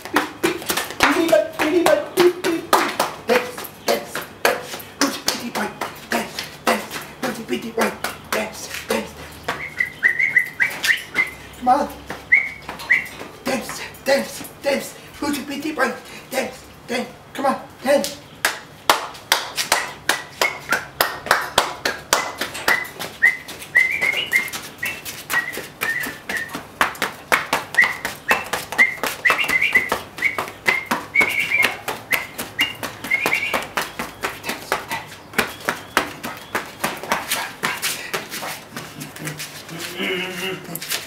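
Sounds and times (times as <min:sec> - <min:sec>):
sharp rhythmic taps or claps: 0:00.0 - 0:14.9, 0:17.9 - 0:40.1
whistled tune: 0:09.5 - 0:11.4, 0:12.3 - 0:13.2, 0:22.7 - 0:26.6, 0:27.7 - 0:33.8.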